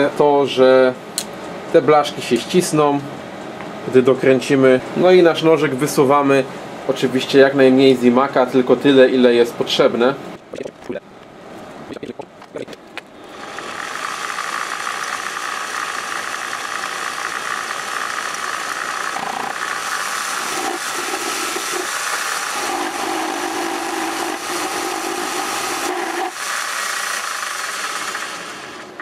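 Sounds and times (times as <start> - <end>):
metal lathe running: 13.2 - 29.0.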